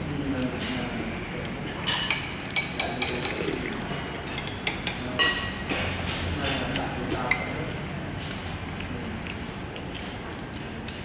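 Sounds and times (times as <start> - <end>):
steady background hum: 0.0 - 11.0
tableware clinking: 1.8 - 5.8.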